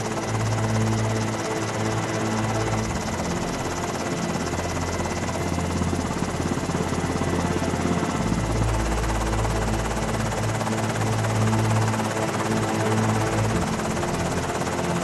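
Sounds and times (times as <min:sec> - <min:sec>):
background music with low notes: 0:00.0 - 0:15.0
helicopter rotor chop: 0:00.0 - 0:15.0.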